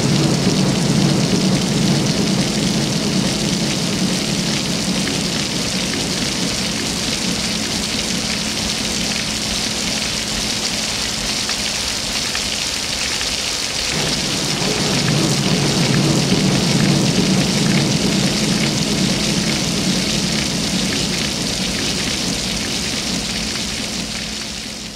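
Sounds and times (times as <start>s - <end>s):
steady rushing noise: 0.0s - 9.2s, 13.8s - 24.9s
low rumble: 0.0s - 9.7s, 13.8s - 24.9s.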